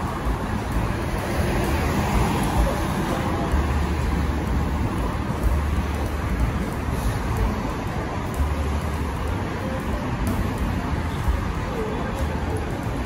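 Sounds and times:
passing vehicles engine rumble: 0.0 - 13.0
street traffic noise: 0.0 - 13.0.

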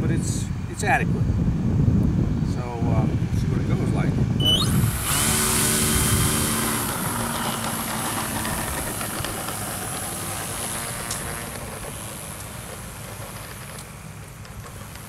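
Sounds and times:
model plane motor whirring: 4.4 - 15.0.

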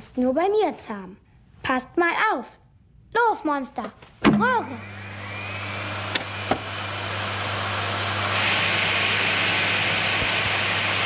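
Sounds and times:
vacuum cleaner motor humming: 4.6 - 11.0.

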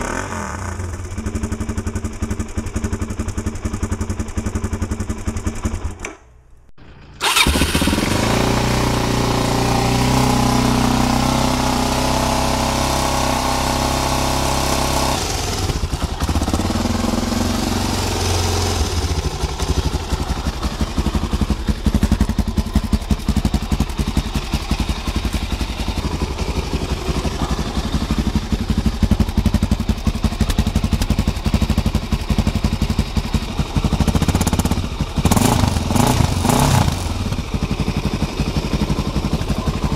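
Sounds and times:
motorcycle engine running: 0.0 - 6.0, 6.8 - 39.9
engine throttle blips: 6.8 - 11.2.

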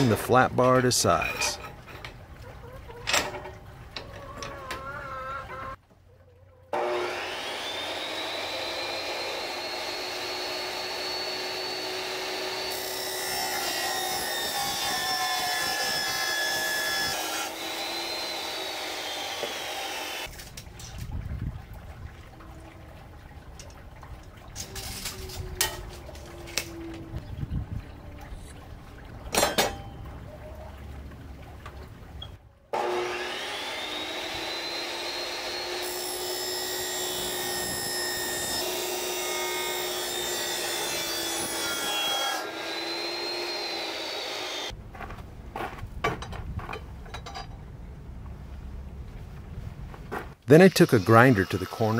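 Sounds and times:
chop saw cutting steel: 0.0 - 0.4, 6.8 - 20.3, 32.8 - 44.7, 50.7 - 51.9
metal clanks and clicks: 46.1 - 47.6.

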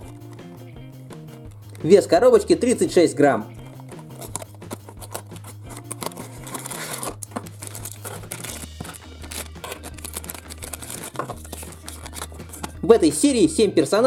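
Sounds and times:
cardboard box being opened: 3.6 - 12.8
plastic bag crinkling and tearing: 4.2 - 12.8.

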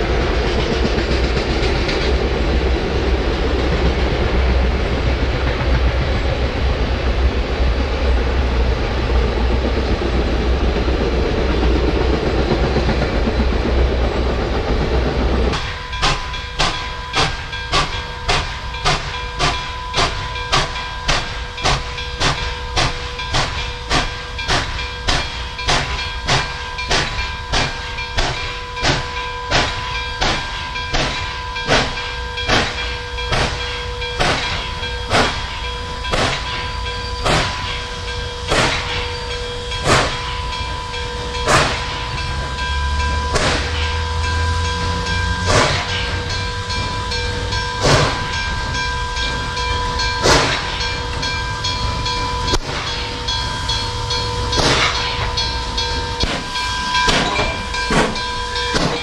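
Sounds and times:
steam locomotive chuffing: 0.0 - 59.0
steam locomotive rumble and hiss: 0.0 - 59.0
steady ringing tone: 15.5 - 59.0.

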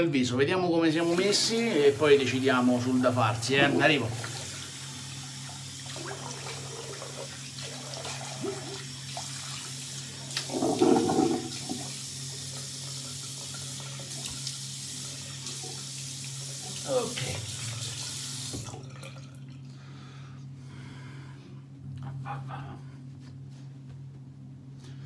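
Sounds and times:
tap water running into sink: 1.0 - 19.6.

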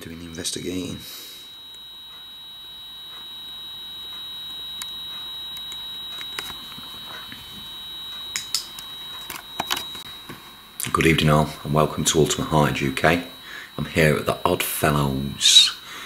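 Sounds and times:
high-pitched electronic tone: 0.0 - 10.3, 10.9 - 15.9
faint hiss: 10.8 - 14.4.

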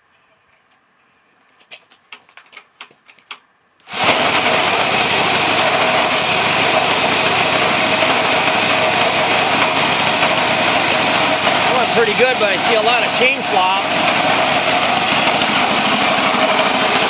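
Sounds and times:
small engines running loudly: 3.9 - 17.0.

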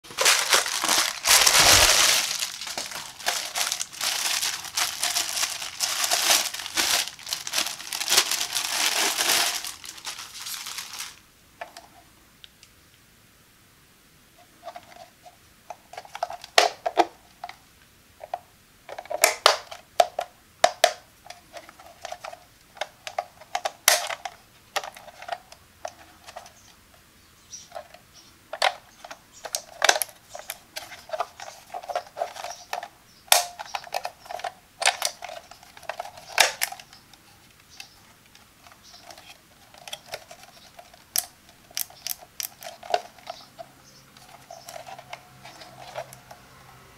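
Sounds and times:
plastic scraping and rubbing: 0.0 - 11.9, 27.7 - 46.4.

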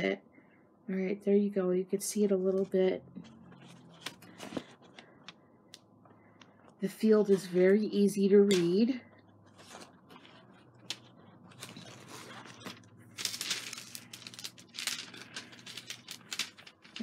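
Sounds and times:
plastic film crinkling: 9.4 - 17.0.

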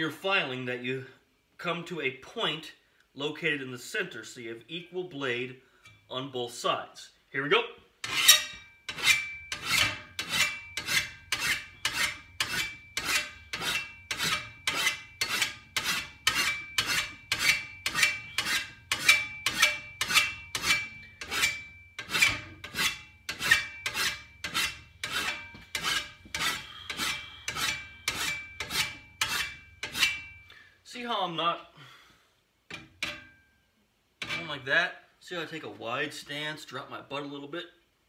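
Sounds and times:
file rasping on metal blade: 8.0 - 30.4
metallic ring of blade: 8.1 - 30.5, 33.0 - 33.6.

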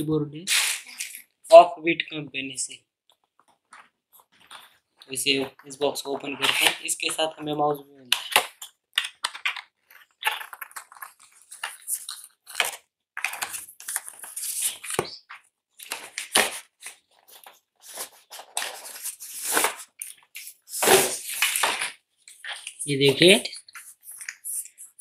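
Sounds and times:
packaging rustling and crinkling: 8.3 - 25.0.

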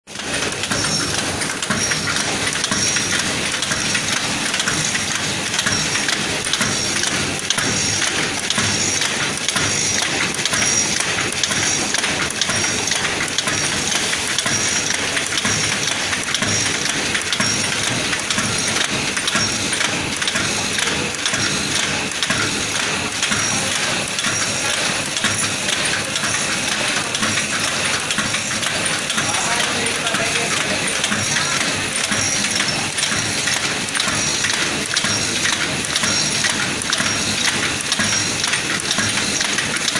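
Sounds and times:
packing machine clatter: 0.1 - 39.9.

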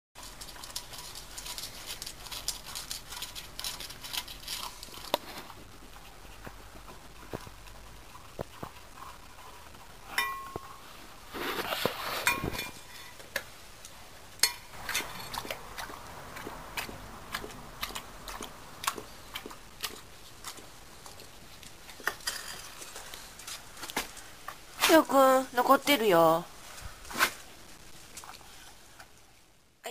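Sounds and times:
dog licking and chewing: 0.2 - 10.8, 14.7 - 24.6
metal bowl knocking and clinking: 10.1 - 10.8.

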